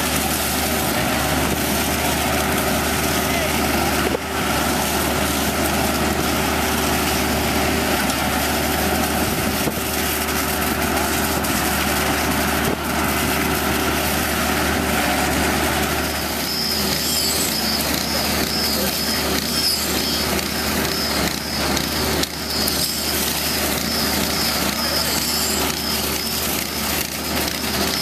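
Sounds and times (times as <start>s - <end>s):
diesel engine running under load: 0.0s - 28.0s.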